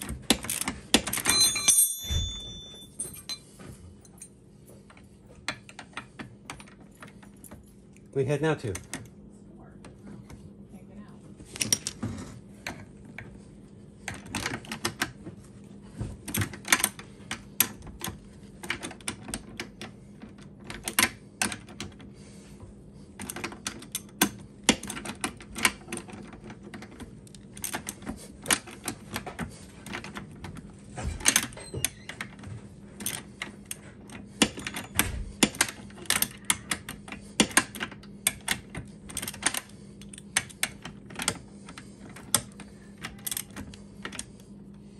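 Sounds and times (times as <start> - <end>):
metallic clinks of tools: 1.2 - 3.5.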